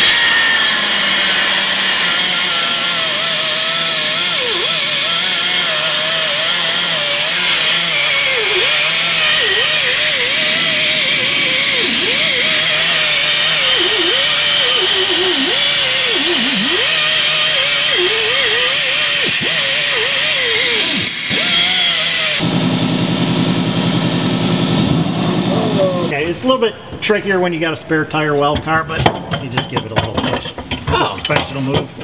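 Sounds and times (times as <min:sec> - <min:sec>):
die grinder grinding metal: 0:00.0 - 0:22.4.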